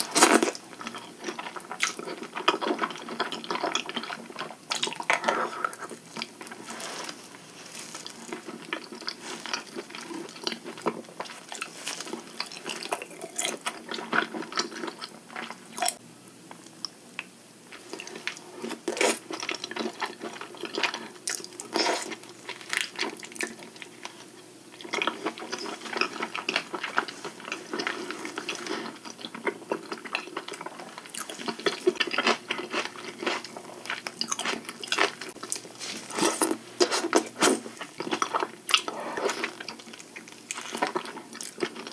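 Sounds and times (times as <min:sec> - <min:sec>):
chewing and lip smacks: 0:24.8 - 0:41.9.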